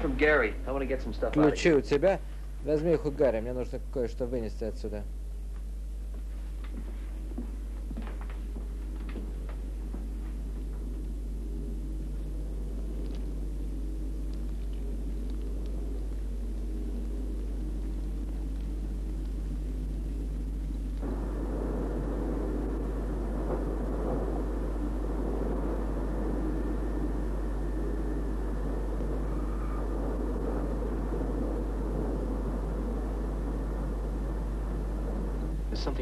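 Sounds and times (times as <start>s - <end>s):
steady rushing noise: 0.0s - 5.0s, 6.6s - 36.0s
low mechanical hum: 0.0s - 36.0s
faint clicks: 12.9s - 13.4s, 14.2s - 19.4s.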